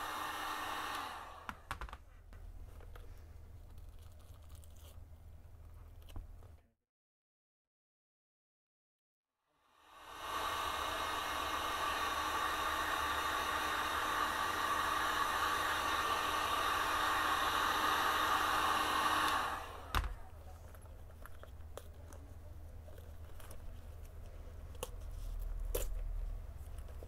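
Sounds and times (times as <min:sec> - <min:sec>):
heat gun blowing air: 0:00.0 - 0:01.7, 0:09.8 - 0:20.2.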